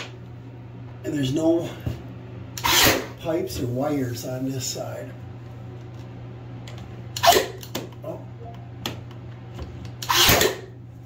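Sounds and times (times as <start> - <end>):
nailer shot: 10.1 - 10.7.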